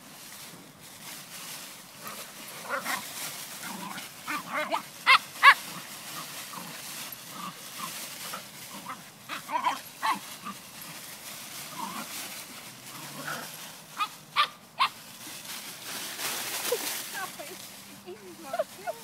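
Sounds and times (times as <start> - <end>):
dogs yapping: 3.6 - 6.2, 8.7 - 10.6, 14.0 - 15.0.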